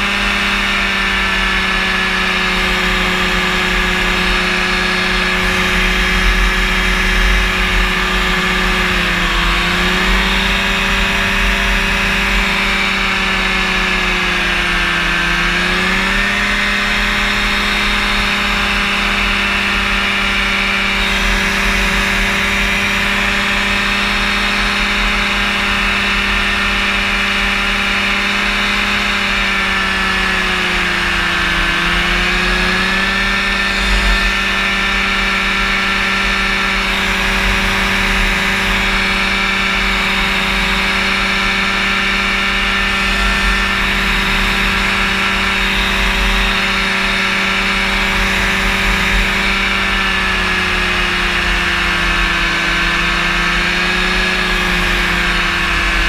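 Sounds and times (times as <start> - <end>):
engine and propeller droning: 0.0 - 56.0.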